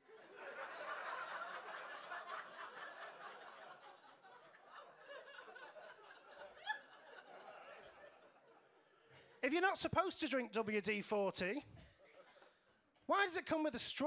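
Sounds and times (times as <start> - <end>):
audience laughing: 0.0 - 9.3
person's voice: 9.4 - 11.8, 13.1 - 14.0.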